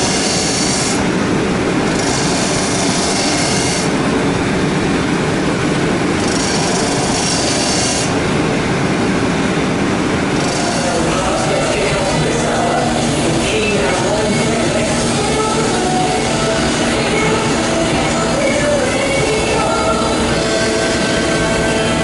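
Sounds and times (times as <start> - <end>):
metal grinding hiss: 0.0 - 1.1, 1.9 - 4.0, 6.2 - 8.2, 10.3 - 22.0
abrasive wheel whirring: 0.0 - 22.0.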